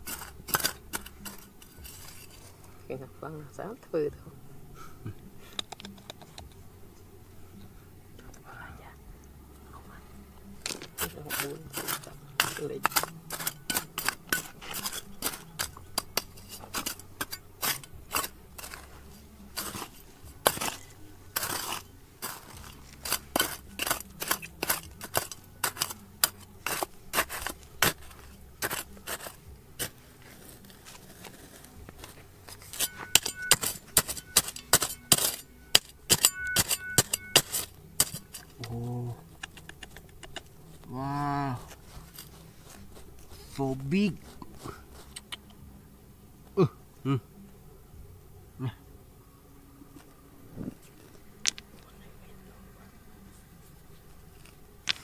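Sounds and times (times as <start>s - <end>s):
rocks and gravel clinking: 0.0s - 3.0s, 10.6s - 45.4s, 50.8s - 52.1s, 54.3s - 55.0s.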